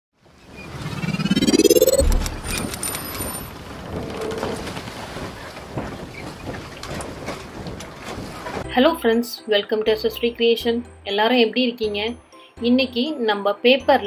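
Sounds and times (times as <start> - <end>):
rising whoosh: 0.6 - 3.0
low boom: 1.0 - 2.7.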